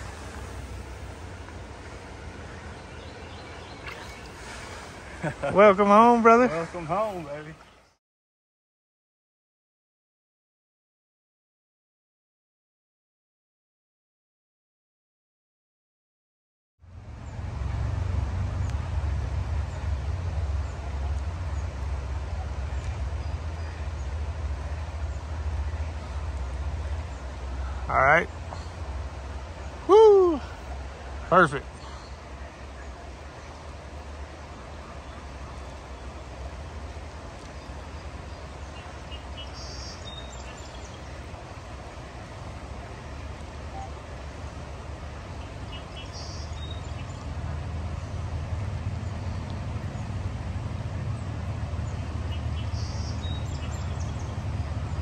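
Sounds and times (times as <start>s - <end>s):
low rumble: 0.0s - 7.4s, 16.9s - 30.0s
creek water rushing: 0.0s - 7.9s, 16.9s - 55.0s.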